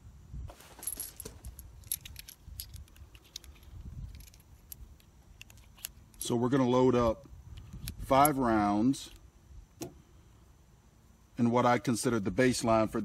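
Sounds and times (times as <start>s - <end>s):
metal cartridges clicking and jingling: 0.8s - 6.7s, 7.5s - 9.2s.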